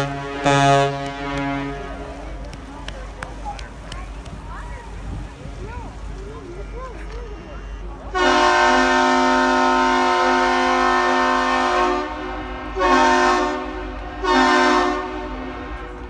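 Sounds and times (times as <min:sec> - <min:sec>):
deep ship's horn blasts: 0:00.0 - 0:02.2, 0:08.1 - 0:16.0.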